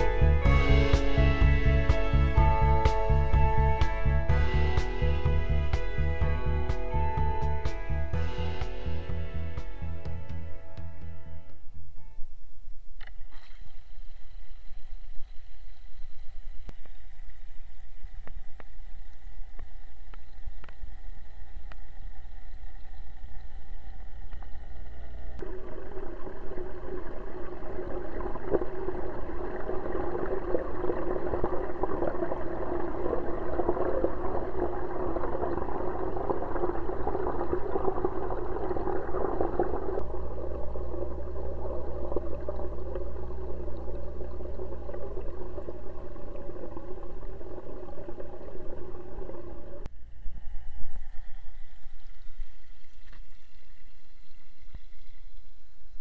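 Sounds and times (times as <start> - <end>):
low hum: 0.0 - 56.0
underwater bubbling and gurgling: 13.2 - 56.0.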